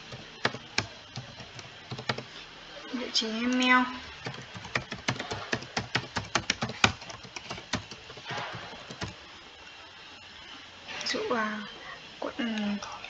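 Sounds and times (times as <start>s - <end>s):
typing on keyboard: 0.0s - 2.3s, 4.1s - 9.2s.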